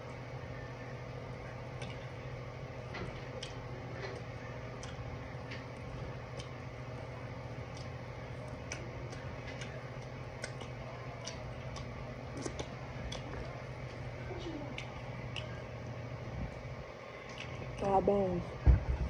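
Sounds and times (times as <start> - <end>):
steady low hum: 0.0 - 19.0
eating mouth sounds: 7.6 - 15.7.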